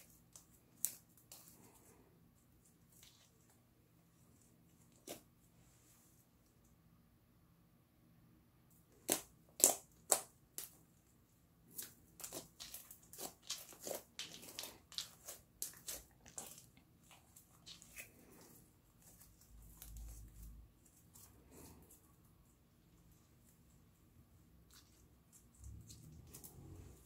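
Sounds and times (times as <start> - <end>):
hands squeezing slime: 11.7 - 22.1.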